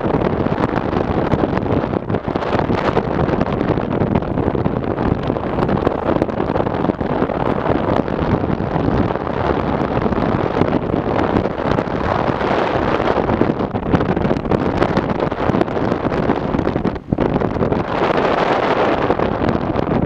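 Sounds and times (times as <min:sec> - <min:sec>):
road and vehicle noise: 0:00.0 - 0:20.0
wind buffeting microphone: 0:00.0 - 0:20.0.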